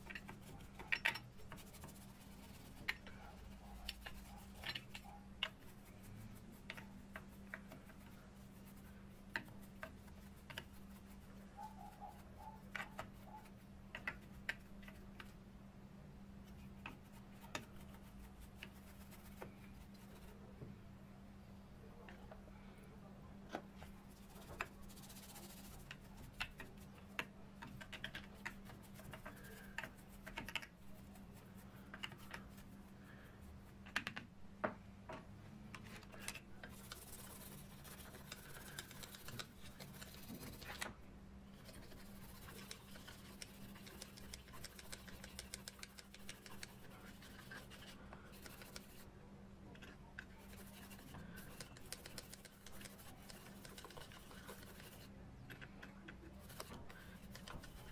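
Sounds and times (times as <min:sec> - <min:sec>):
brush scrubbing metal gears: 0:00.0 - 0:15.1, 0:35.9 - 0:49.1, 0:50.2 - 0:55.1, 0:56.3 - 0:57.9.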